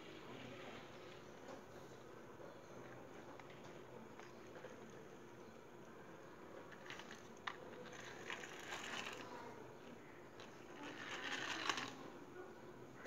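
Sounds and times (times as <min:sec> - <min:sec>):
toy car rolling on floor: 0:06.6 - 0:09.4, 0:10.4 - 0:12.1.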